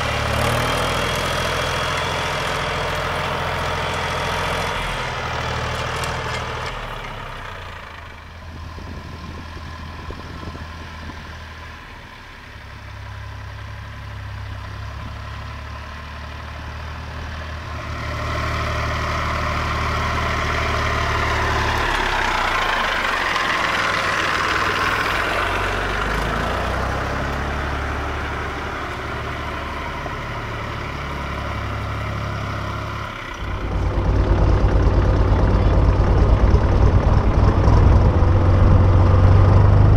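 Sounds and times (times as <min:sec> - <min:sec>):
tractor diesel engine driving past: 0:00.0 - 0:39.9.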